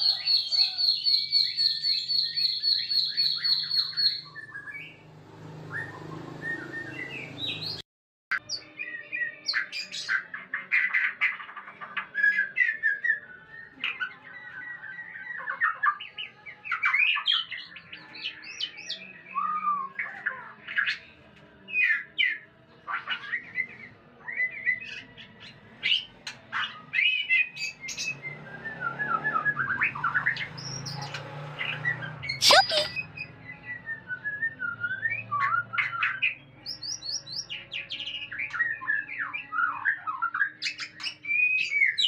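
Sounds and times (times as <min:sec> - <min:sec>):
bird singing whistles and chirps: 0:00.0 - 0:05.0, 0:05.7 - 0:07.8, 0:12.1 - 0:20.1, 0:31.8 - 0:42.0.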